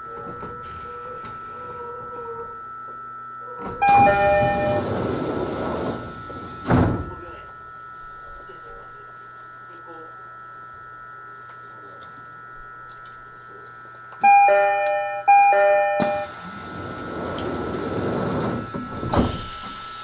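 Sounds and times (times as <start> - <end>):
two-tone door chime: 3.4 - 6.4, 14.2 - 17.3.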